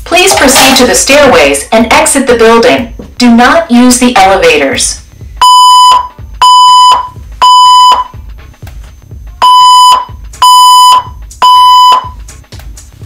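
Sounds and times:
fire alarm beeps: 5.4s - 8.2s, 9.4s - 12.2s.

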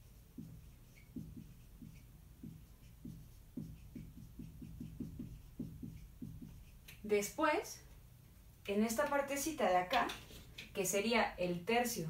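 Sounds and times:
marker squeaking on whiteboard: 0.0s - 7.0s.

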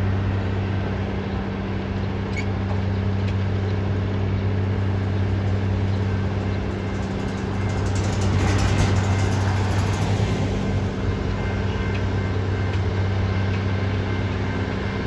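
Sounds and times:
engine idling: 3.2s - 14.9s.

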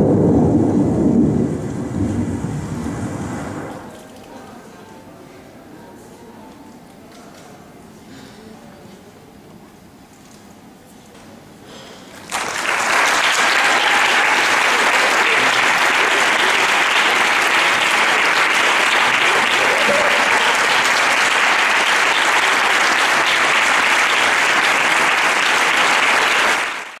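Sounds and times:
audience applauding: 12.2s - 27.0s.

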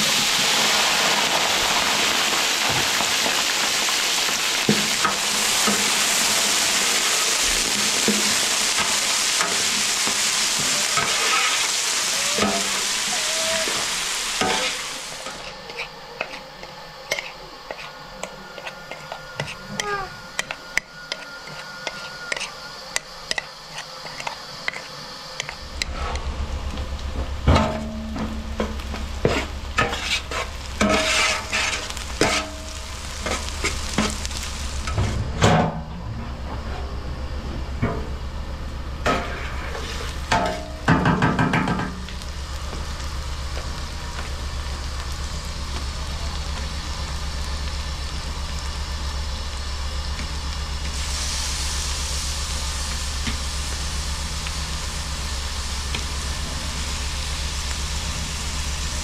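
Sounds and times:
onions sizzling in oil: 0.0s - 35.4s, 36.3s - 59.0s
low steady hum: 15.2s - 59.0s
metal utensil scraping pot: 18.6s - 22.6s.

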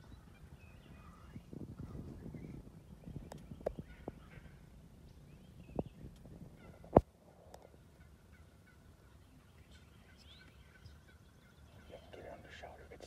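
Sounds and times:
turkeys gobbling: 6.6s - 12.7s.

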